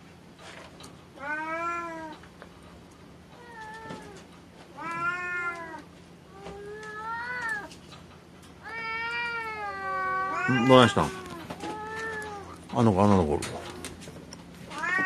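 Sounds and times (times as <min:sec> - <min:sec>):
cat meowing: 0:01.2 - 0:02.2, 0:04.8 - 0:07.7, 0:08.6 - 0:12.6, 0:14.7 - 0:15.0.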